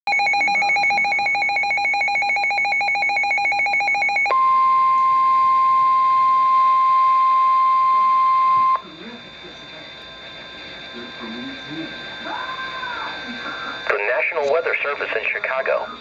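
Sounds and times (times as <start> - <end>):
steady single-pitch tone: 0.1 - 12.6
warbling electronic alarm: 0.1 - 16.0.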